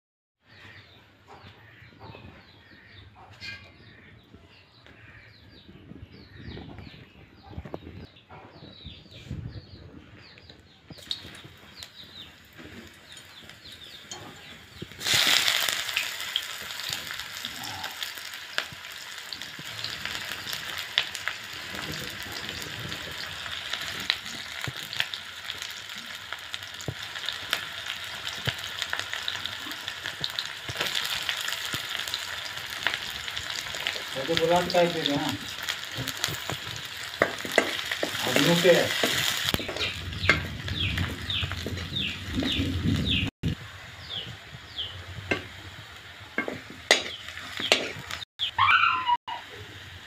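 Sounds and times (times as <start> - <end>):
onions sizzling in hot oil: 10.9 - 50.0.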